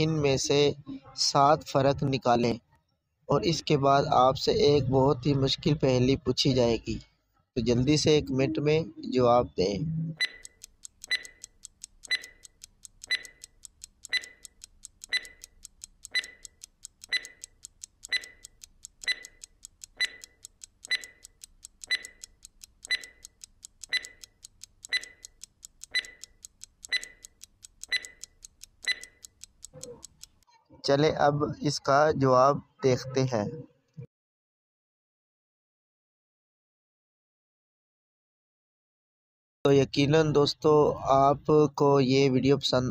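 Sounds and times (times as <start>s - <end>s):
clock ticking: 10.0s - 30.5s.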